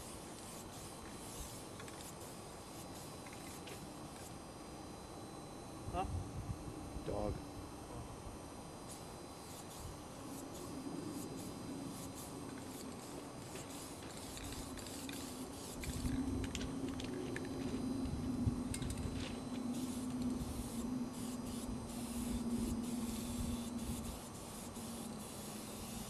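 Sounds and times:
spray paint cans hissing: 0:00.0 - 0:04.4, 0:08.9 - 0:17.9, 0:18.8 - 0:26.0
low hum and rumble: 0:05.6 - 0:08.8, 0:14.3 - 0:24.3.

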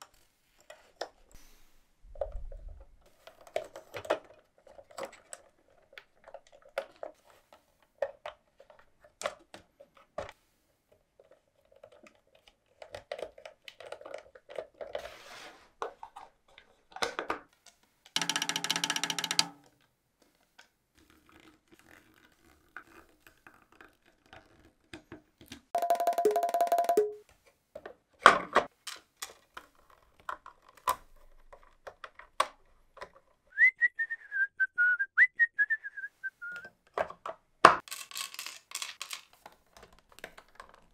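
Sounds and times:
plastic parts clicking together: 0:11.2 - 0:15.0, 0:15.8 - 0:20.8, 0:27.8 - 0:33.4, 0:36.8 - 0:40.9
falling whistle-like tone: 0:33.6 - 0:36.7.

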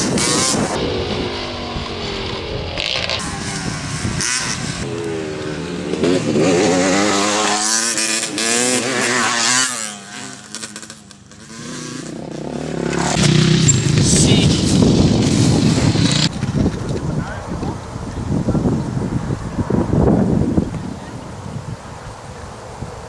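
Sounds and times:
motocross bike engine revving: 0:00.0 - 0:16.8.

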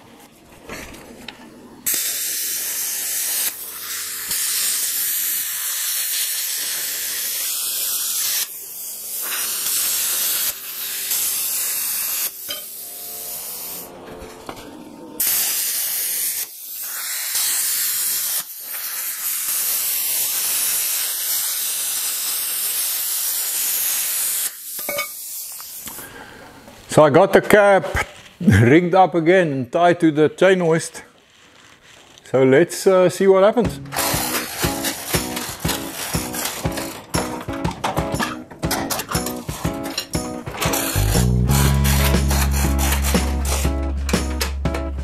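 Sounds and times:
plasma cutter hissing: 0:01.8 - 0:13.9, 0:15.2 - 0:26.0, 0:33.8 - 0:37.4, 0:39.0 - 0:43.7.

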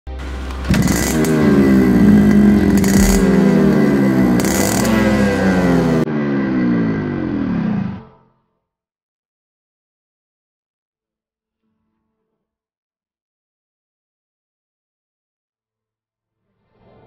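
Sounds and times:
motorcycle engine running: 0:00.2 - 0:07.4.

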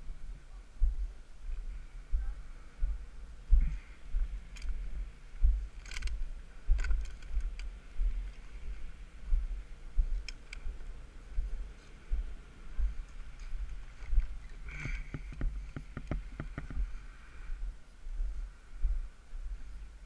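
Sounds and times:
footsteps on dirt road: 0:00.0 - 0:19.6
gear clicking and rattling: 0:05.7 - 0:08.6.

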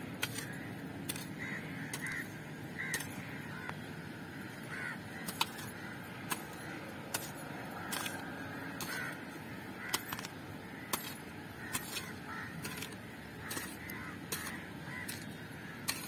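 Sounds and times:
hoe chopping and scraping soil: 0:00.0 - 0:03.4, 0:05.2 - 0:16.0
bird calls: 0:00.2 - 0:16.0.

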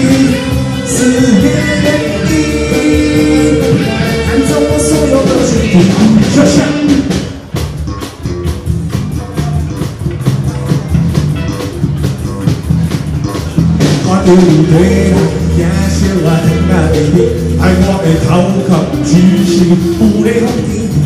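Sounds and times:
person singing: 0:00.0 - 0:07.2, 0:13.9 - 0:21.0
live rock band playing: 0:00.0 - 0:21.0.

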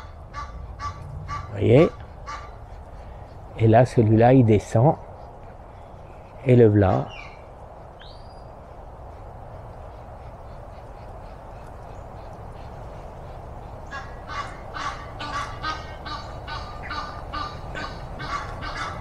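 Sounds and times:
bird honking: 0:00.0 - 0:03.6, 0:05.1 - 0:19.0
outdoor background hum: 0:00.0 - 0:19.0.

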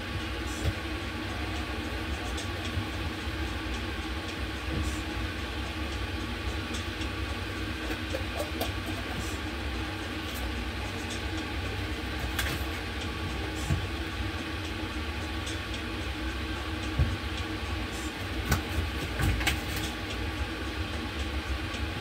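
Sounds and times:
low rumbling kitchen hum: 0:00.0 - 0:22.0
pots and utensils clicking: 0:07.8 - 0:09.2.

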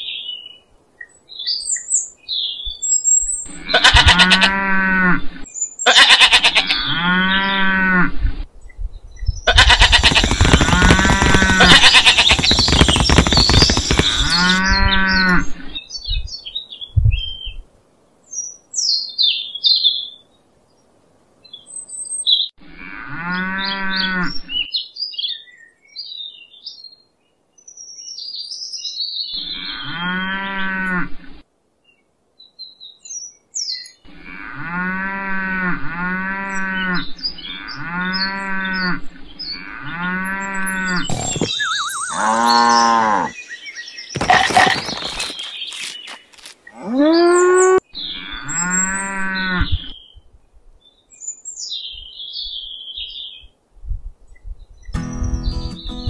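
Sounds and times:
birds chirping: 0:00.0 - 0:04.6, 0:09.1 - 0:17.6, 0:27.7 - 0:30.3, 0:36.3 - 0:50.2, 0:54.7 - 0:56.0
cow mooing: 0:03.6 - 0:05.4, 0:42.0 - 0:43.4
loud rough noise: 0:09.6 - 0:14.6.

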